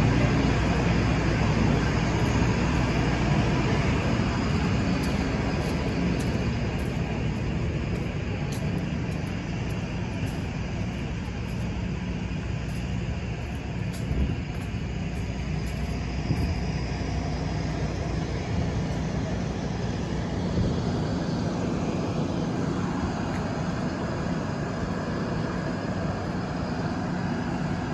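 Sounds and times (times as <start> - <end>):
diesel engines idling: 0.0 - 27.9.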